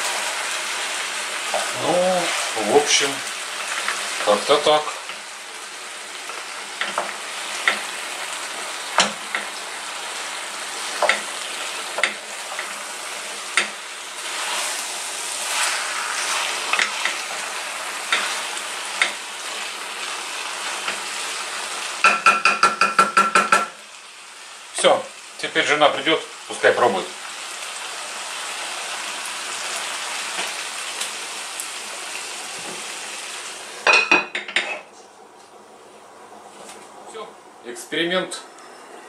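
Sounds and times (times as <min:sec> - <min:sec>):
food sizzling in a pan: 0:00.0 - 0:34.9
wooden spatula knocking pan: 0:22.0 - 0:23.7.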